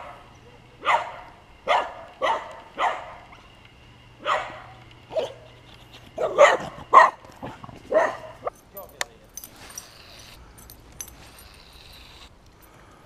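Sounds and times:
dog barking: 0:00.8 - 0:03.2, 0:04.2 - 0:05.4, 0:06.2 - 0:07.2, 0:07.9 - 0:08.5.

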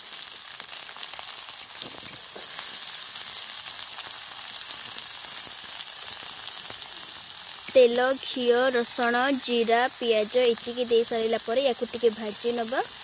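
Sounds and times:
small crackles: 0:00.0 - 0:08.7
onion sizzling in hot oil: 0:00.0 - 0:13.0.

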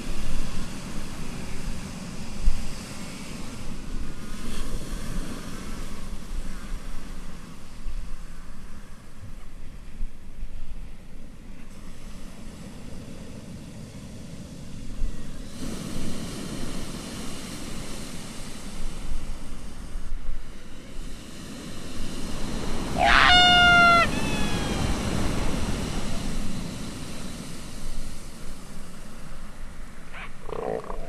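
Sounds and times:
rushing wind: 0:11.7 - 0:31.0
pitched animal call: 0:23.0 - 0:25.4, 0:30.1 - 0:31.0.

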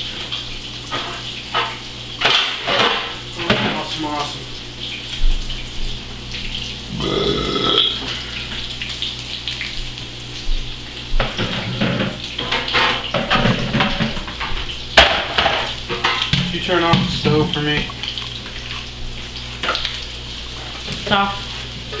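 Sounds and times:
tap water running into sink: 0:00.0 - 0:22.0
dishes and utensils clattering: 0:00.9 - 0:03.9, 0:11.2 - 0:17.9.

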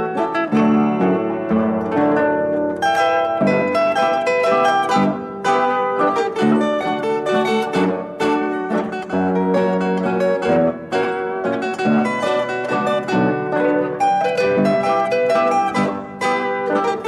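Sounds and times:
plucked string music: 0:00.0 - 0:17.0.

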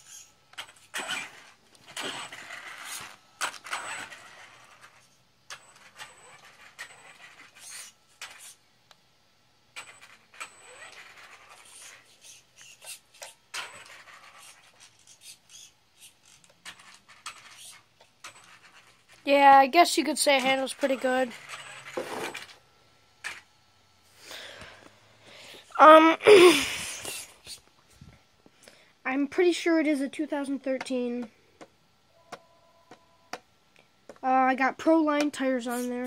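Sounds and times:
toy truck motor whirring: 0:00.0 - 0:08.7, 0:09.7 - 0:22.6, 0:23.2 - 0:23.5, 0:25.6 - 0:27.7, 0:34.9 - 0:36.0.

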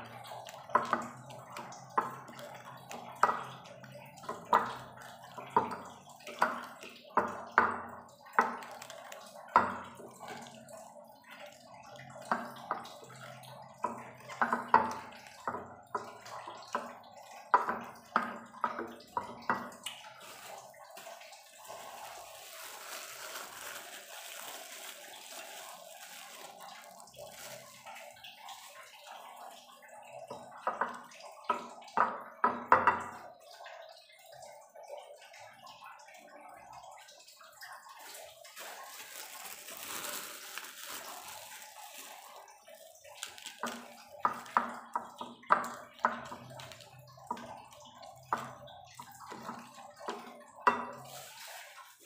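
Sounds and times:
wet crushing strokes: 0:20.1 - 0:28.8, 0:38.0 - 0:44.6.

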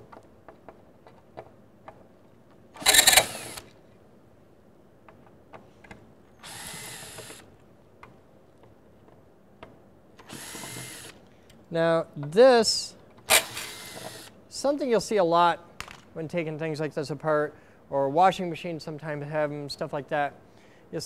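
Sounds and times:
cordless drill driving screws: 0:02.8 - 0:03.8, 0:06.4 - 0:07.5, 0:10.2 - 0:11.2, 0:13.3 - 0:14.4.

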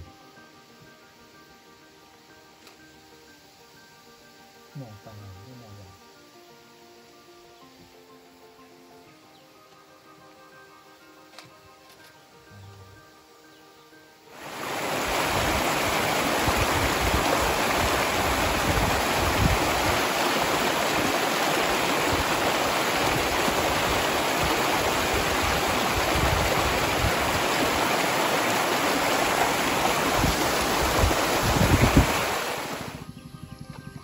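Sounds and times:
stream rushing over rocks: 0:14.3 - 0:33.0.

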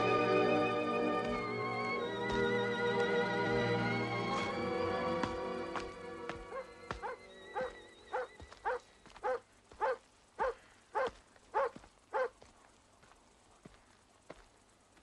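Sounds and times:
dog barking: 0:06.5 - 0:12.4.

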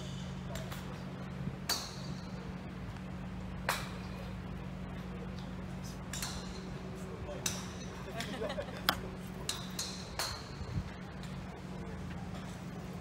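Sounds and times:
golf club striking ball: 0:01.6 - 0:02.2.

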